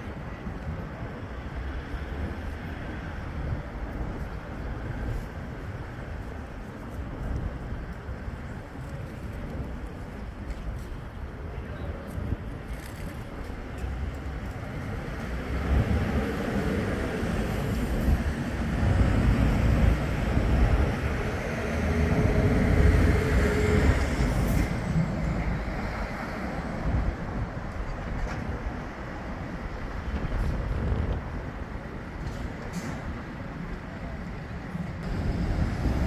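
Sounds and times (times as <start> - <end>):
road traffic rumbling: 0.0 - 36.0
heavy vehicle passing: 14.7 - 27.3.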